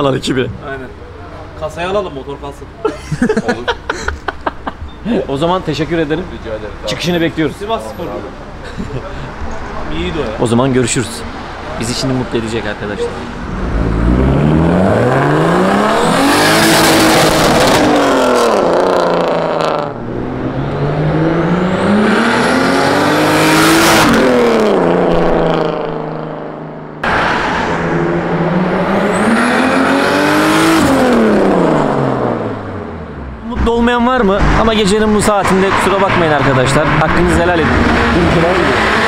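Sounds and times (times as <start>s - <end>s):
car accelerating past: 13.1s - 33.2s, 35.5s - 39.0s.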